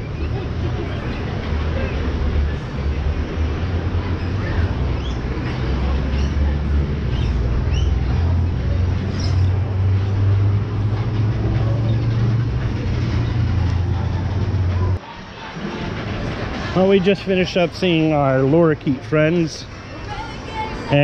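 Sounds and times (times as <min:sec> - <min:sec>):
steady low rumble: 0:06.6 - 0:17.8.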